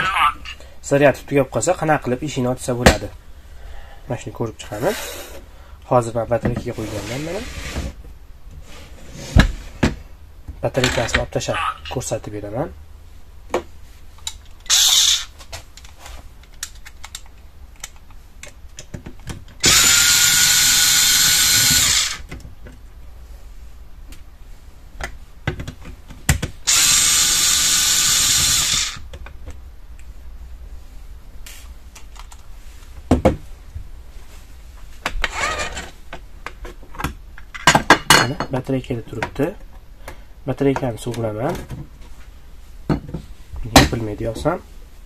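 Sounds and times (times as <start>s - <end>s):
electric screwdriver running: 14.7s - 15.3s, 19.6s - 22.2s, 26.7s - 29.0s.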